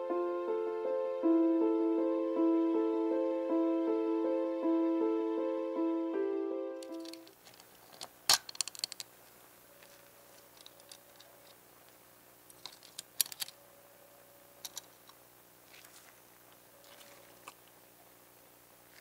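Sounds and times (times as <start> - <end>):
piano music: 0.0 - 7.3.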